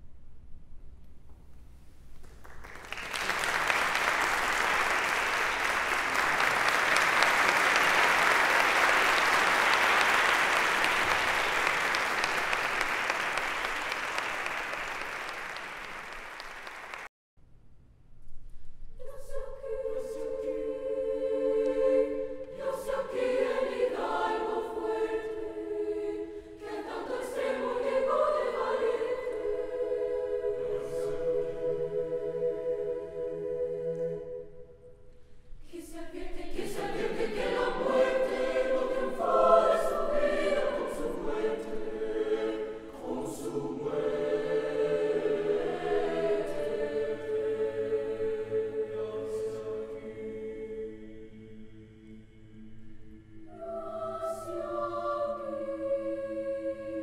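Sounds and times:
audience applause: 2.4 - 17.1
choir singing sustained chords: 19.0 - 57.0.

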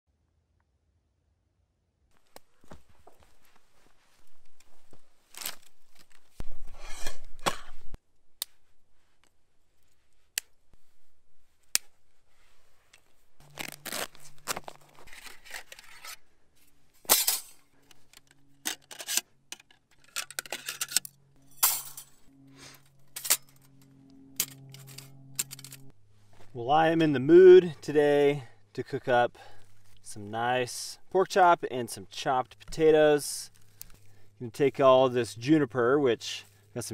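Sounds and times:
dry branches rustling and snapping: 2.2 - 6.4, 33.5 - 34.2.

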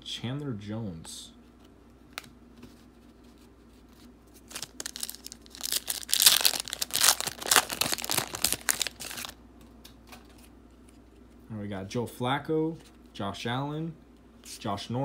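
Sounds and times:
plastic wrapper tearing and crinkling: 4.4 - 9.4.

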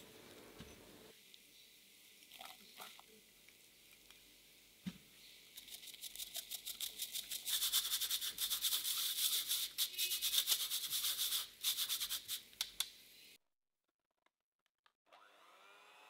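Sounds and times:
sugar sifted through wire sieve: 5.6 - 12.3.

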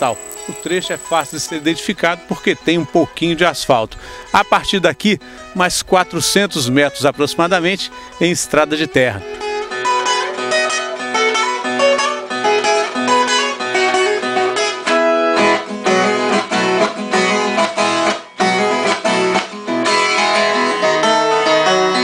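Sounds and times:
acoustic guitar music: 0.0 - 22.0.

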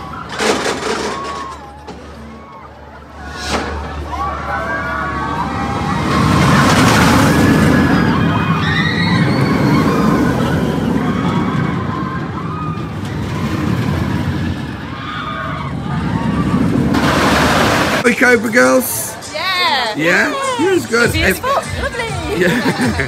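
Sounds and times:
riders screaming: 0.0 - 18.0
roller coaster train rumbling: 0.0 - 23.0.

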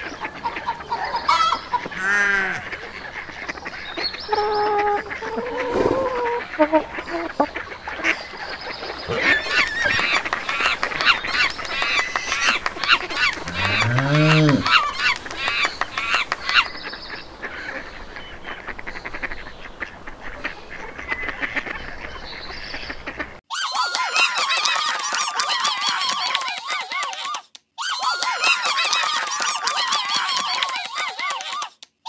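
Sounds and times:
high-pitched animal calls: 3.9 - 8.2, 8.9 - 16.7
low drawn-out animal call: 4.3 - 7.5, 9.0 - 16.4.

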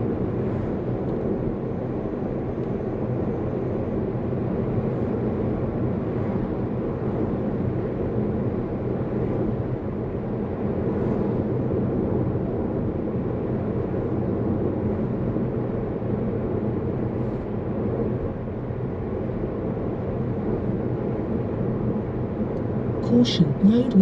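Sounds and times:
road and tyre rumble: 0.0 - 24.0.

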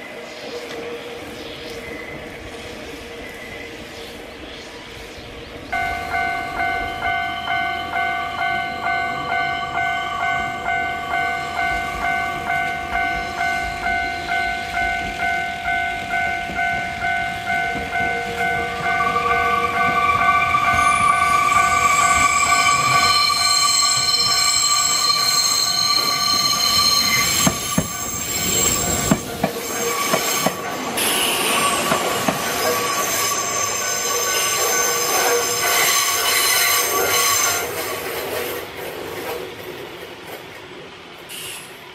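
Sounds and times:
train wheels squealing: 0.0 - 38.6, 41.3 - 41.9
level crossing bell ringing: 5.8 - 31.0.

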